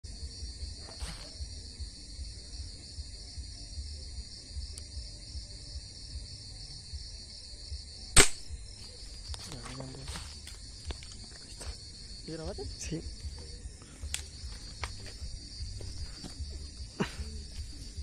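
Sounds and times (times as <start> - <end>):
night insects trilling: 0.0 - 18.0
gunshot: 8.2 - 8.6.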